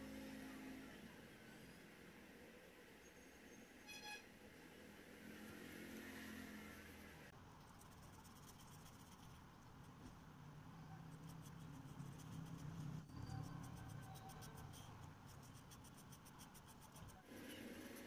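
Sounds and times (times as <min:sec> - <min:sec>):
marker rubbing on paper: 0:11.1 - 0:18.0.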